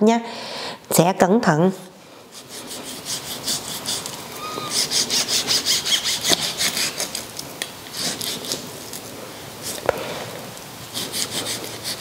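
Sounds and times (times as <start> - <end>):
knife sawing through meat: 2.3 - 7.2, 10.9 - 12.0.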